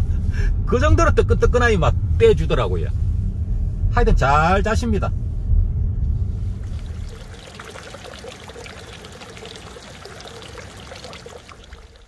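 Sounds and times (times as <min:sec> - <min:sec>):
car road rumble: 0:00.0 - 0:12.0
water pouring into stone basin: 0:06.5 - 0:12.0.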